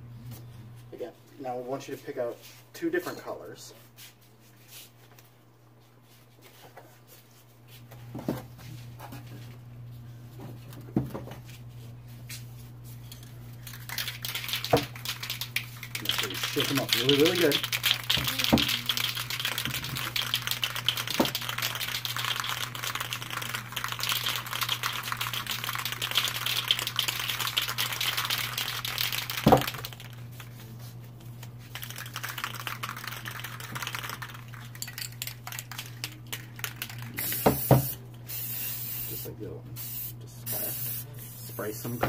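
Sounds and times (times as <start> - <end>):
spray cans rattling when shaken: 13.5 - 30.6, 31.4 - 39.2.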